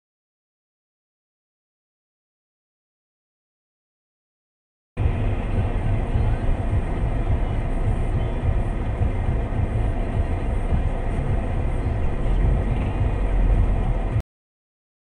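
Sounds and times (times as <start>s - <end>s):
vehicle rumble: 5.0s - 14.2s.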